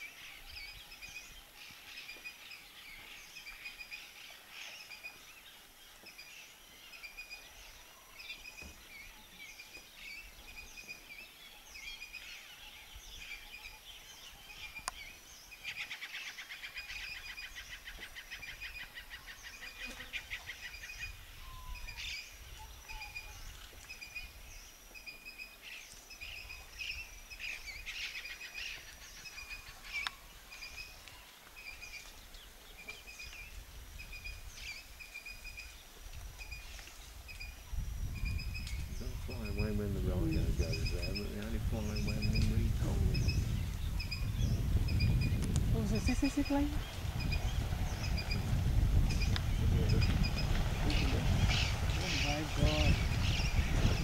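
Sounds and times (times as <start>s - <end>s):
birds rapid chattering: 38.5s - 54.0s.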